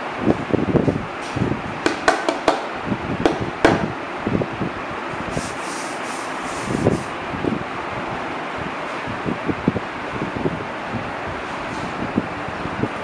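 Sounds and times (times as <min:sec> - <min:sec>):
microphone handling and wind noise: 0:00.2 - 0:01.9, 0:06.6 - 0:07.7
hand tapping wooden top: 0:01.9 - 0:02.7.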